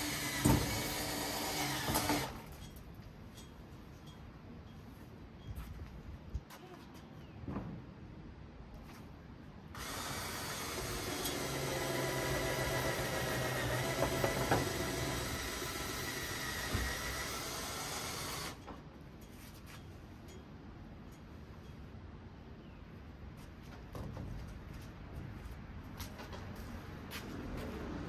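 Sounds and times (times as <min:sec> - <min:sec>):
electric power tool running: 0:09.8 - 0:18.6.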